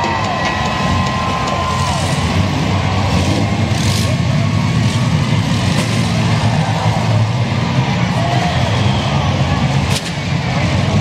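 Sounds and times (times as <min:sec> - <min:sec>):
minivan engines revving: 0:00.0 - 0:11.0.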